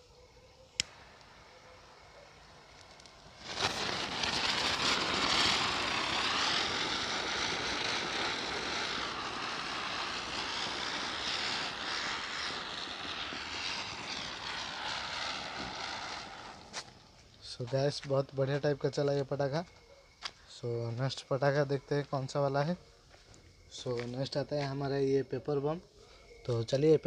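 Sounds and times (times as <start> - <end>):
spinner fireworks whooshing hiss: 0.0 - 19.3.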